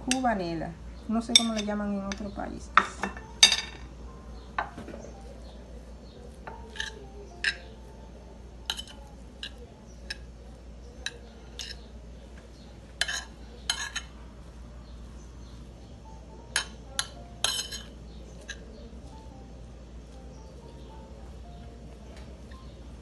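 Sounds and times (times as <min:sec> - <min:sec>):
fork clinking and scraping plate: 0:01.3 - 0:03.9, 0:06.4 - 0:07.8, 0:08.6 - 0:14.2, 0:16.5 - 0:18.7.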